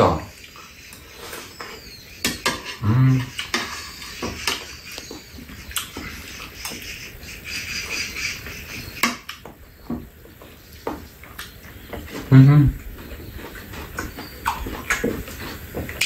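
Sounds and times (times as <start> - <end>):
eating sounds: 0.0 - 16.0
person humming: 2.8 - 3.3, 12.3 - 12.8.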